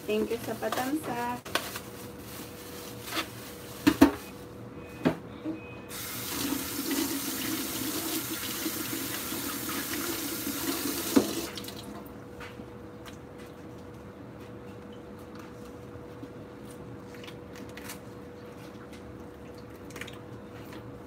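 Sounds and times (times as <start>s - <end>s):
tap running into sink: 10.9s - 11.8s.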